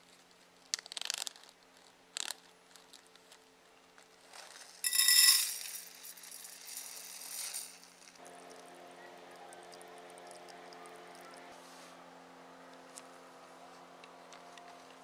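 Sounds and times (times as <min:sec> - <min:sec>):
food packet crinkling: 0:00.7 - 0:03.4
packet ripping open: 0:00.8 - 0:03.1.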